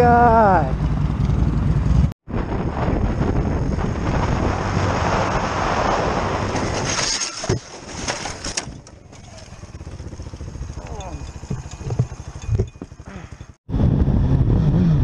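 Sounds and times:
motorcycle engine running: 0:00.0 - 0:02.1, 0:08.7 - 0:15.0
wind rushing over microphone: 0:00.7 - 0:07.0, 0:13.4 - 0:15.0.

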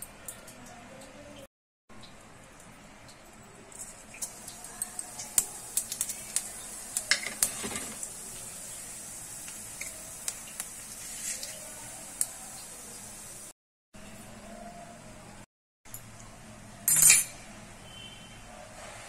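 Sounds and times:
oil sizzling with seeds frying: 0:01.9 - 0:13.6.

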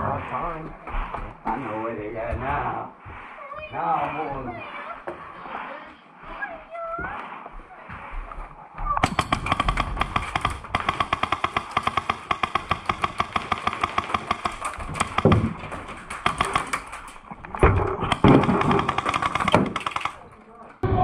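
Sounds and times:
airsoft rifle firing full-auto: 0:09.0 - 0:15.5, 0:18.1 - 0:20.2.

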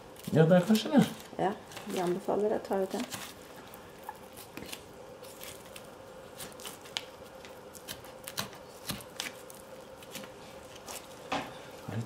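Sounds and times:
knife cutting meat from bone: 0:07.7 - 0:11.0.

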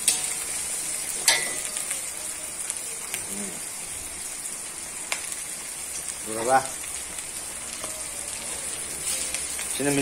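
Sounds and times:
oil sizzling: 0:00.0 - 0:10.0
spatula clanking against pan: 0:01.2 - 0:01.8
metal spatula scraping: 0:09.0 - 0:09.6.

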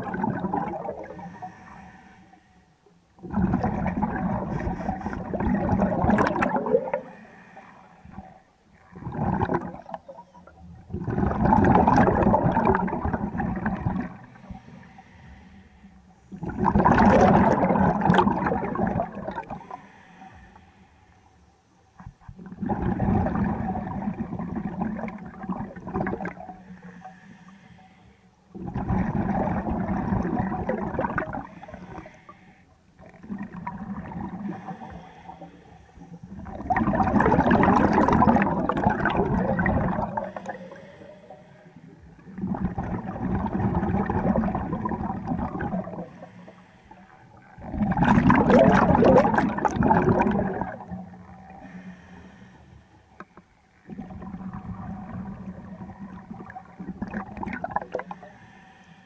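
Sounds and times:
exhaled bubbles rushing: 0:00.0 - 0:01.4, 0:03.2 - 0:07.2, 0:08.8 - 0:14.4, 0:16.3 - 0:19.8, 0:22.3 - 0:26.5, 0:28.6 - 0:31.5, 0:33.0 - 0:34.8, 0:36.2 - 0:40.8, 0:42.0 - 0:46.2, 0:47.4 - 0:51.6, 0:53.8 - 0:58.3
regulator inhalations: 0:01.2 - 0:02.8, 0:06.9 - 0:08.2, 0:14.2 - 0:16.4, 0:19.5 - 0:21.7, 0:26.6 - 0:28.5, 0:31.4 - 0:32.8, 0:34.4 - 0:36.3, 0:40.1 - 0:42.2, 0:45.9 - 0:47.5, 0:51.6 - 0:53.6, 0:58.0 - 0:59.0.

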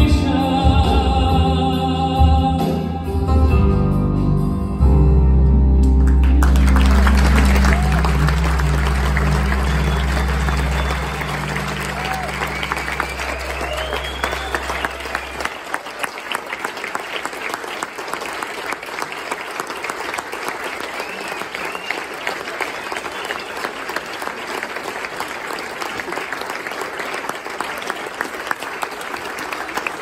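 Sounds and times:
audience applauding: 0:06.0 - 0:30.0.

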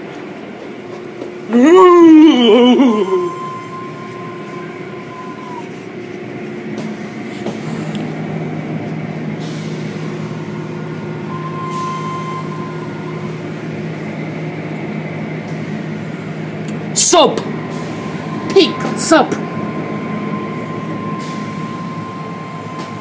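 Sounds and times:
car wash machinery drone: 0:00.0 - 0:23.0
low hum: 0:01.6 - 0:23.0
faint high whine: 0:02.1 - 0:06.1, 0:11.2 - 0:14.0, 0:17.5 - 0:23.0.

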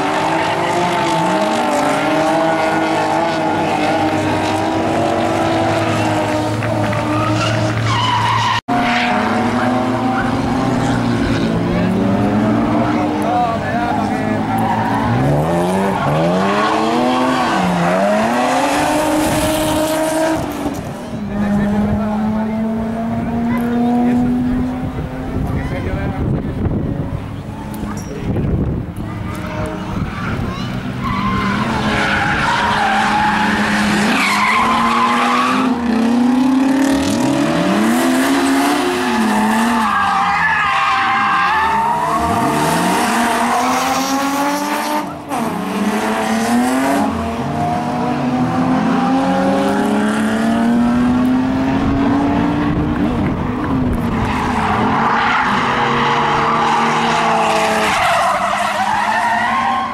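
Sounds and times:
car engine revving: 0:00.0 - 0:59.9
tyres squealing: 0:00.5 - 0:11.6, 0:30.2 - 0:35.9, 0:39.0 - 0:44.2, 0:54.3 - 0:59.9.

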